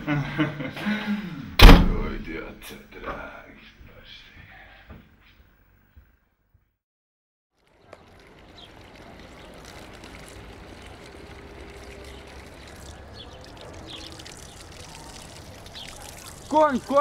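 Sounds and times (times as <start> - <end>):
water running into stone basin: 7.6 - 17.0.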